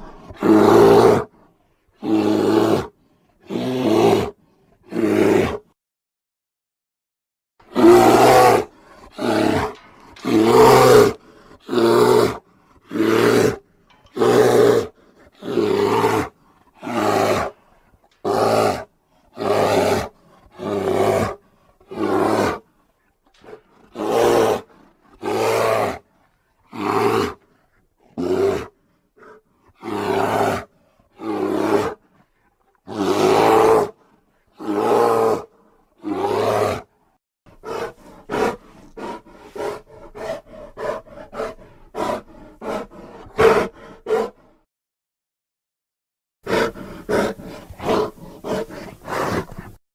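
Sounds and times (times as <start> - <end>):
creature roaring: 7.7 - 12.4, 32.9 - 34.0.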